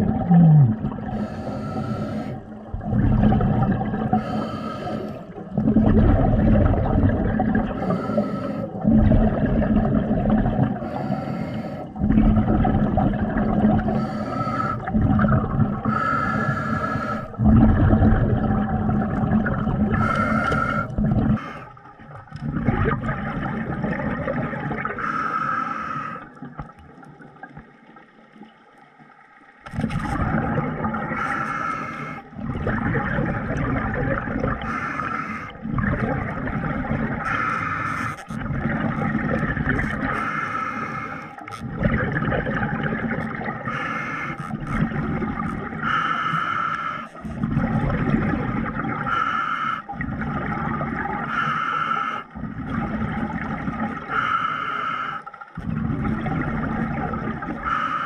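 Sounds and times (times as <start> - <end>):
exhaled bubbles rumbling underwater: 0.0 - 58.0
diver breathing in hiss: 1.1 - 2.6, 4.1 - 5.4, 7.7 - 8.8, 10.8 - 12.0, 13.8 - 15.0, 15.8 - 17.4, 19.9 - 21.8, 25.0 - 26.4, 31.1 - 32.4, 34.6 - 35.6, 37.2 - 38.3, 40.1 - 41.6, 43.6 - 44.5, 45.8 - 47.2, 49.0 - 50.0, 51.2 - 52.4, 54.0 - 55.4, 57.6 - 58.0.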